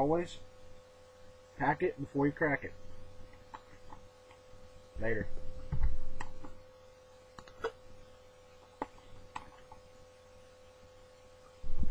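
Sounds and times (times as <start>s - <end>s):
faint electrical hum: 0.0s - 11.9s.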